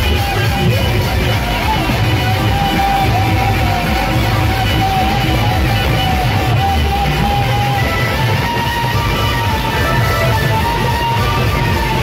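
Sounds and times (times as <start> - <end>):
wavering lead melody: 3.0 - 12.0.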